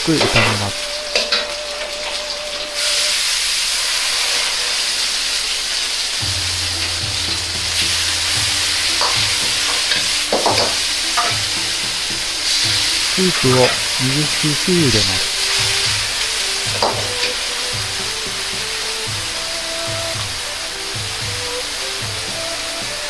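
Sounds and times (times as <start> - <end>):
vegetables sizzling in a wok: 0.0 - 23.0
metal ladle knocking on wok: 6.2 - 11.9.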